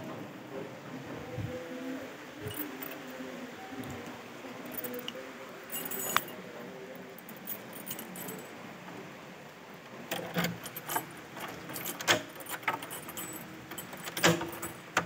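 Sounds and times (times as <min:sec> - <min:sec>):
door latch clinking: 0:03.9 - 0:06.4, 0:10.1 - 0:15.0
latch click: 0:10.1 - 0:15.0.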